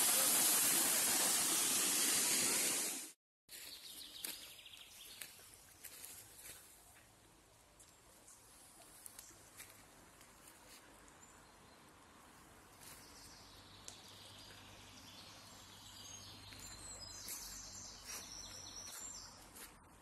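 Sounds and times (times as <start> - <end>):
birds chirping: 12.8 - 19.7.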